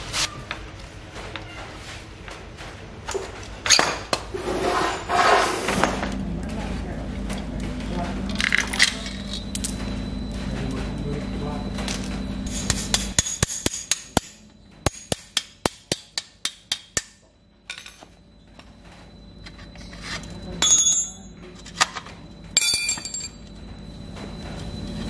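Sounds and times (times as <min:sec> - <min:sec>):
metal clinking: 0:20.6 - 0:21.3, 0:22.6 - 0:23.4.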